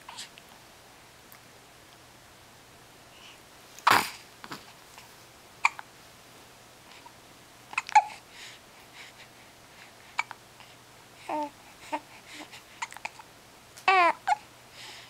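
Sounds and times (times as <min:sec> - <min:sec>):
baby hiccuping: 0:03.8 - 0:04.2, 0:05.6 - 0:05.9, 0:07.7 - 0:08.2.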